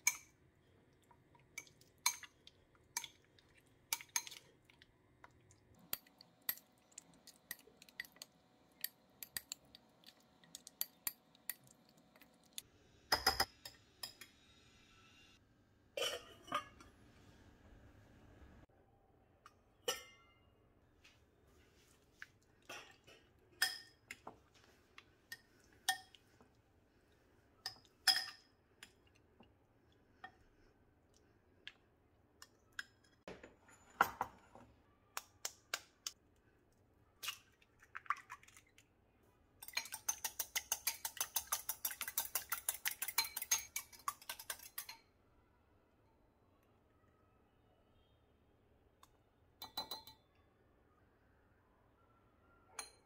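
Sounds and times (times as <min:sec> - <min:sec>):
fork whisking egg in glass bowl: 0:39.6 - 0:45.0
utensils clinking on glass bowl: 0:39.6 - 0:45.1.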